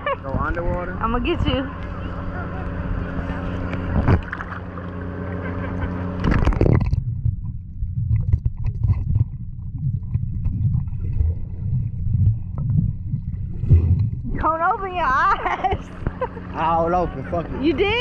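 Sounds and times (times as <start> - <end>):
uneven low rumble: 0.0 - 16.3
engine hum: 0.0 - 18.0.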